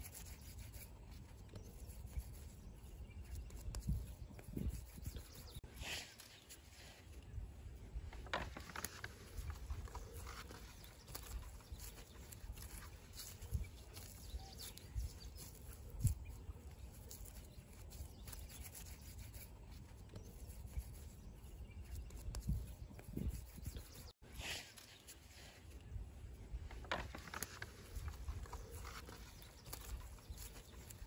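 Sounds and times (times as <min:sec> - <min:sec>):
hands rubbing damp clay: 0:00.0 - 0:07.3, 0:08.1 - 0:25.9, 0:26.8 - 0:31.0.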